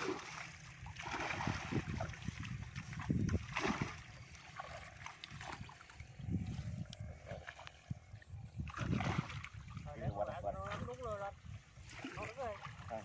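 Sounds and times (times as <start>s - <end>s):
fish thrashing in a net: 0.0s - 2.1s, 3.4s - 5.8s
water sloshing and splashing: 0.0s - 13.0s.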